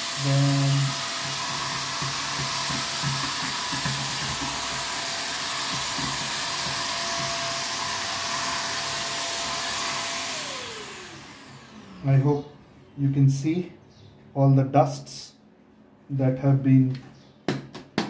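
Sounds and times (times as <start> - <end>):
handheld vacuum cleaner running: 0.0 - 12.2.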